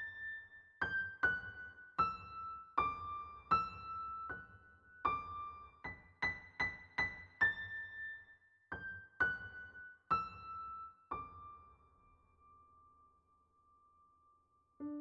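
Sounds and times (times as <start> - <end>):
slow high keyboard melody: 14.8 - 15.0.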